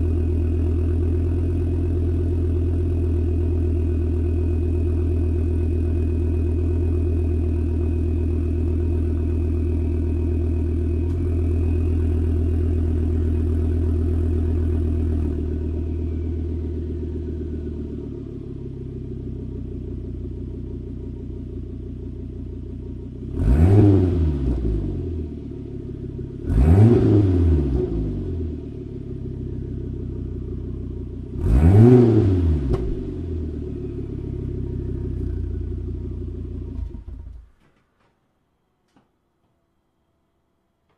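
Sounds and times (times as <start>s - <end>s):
car engine idling: 0.0s - 37.7s
engine revving: 23.2s - 25.4s, 26.2s - 28.8s, 31.3s - 37.3s.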